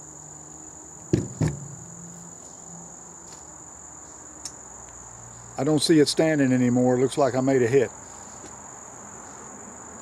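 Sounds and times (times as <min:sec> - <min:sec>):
insects chirring: 0:00.0 - 0:10.0
sharp knocks: 0:01.1 - 0:02.0.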